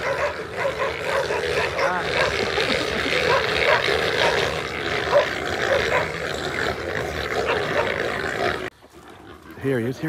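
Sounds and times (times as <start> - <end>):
dogs barking and yelping: 0.0 - 9.6.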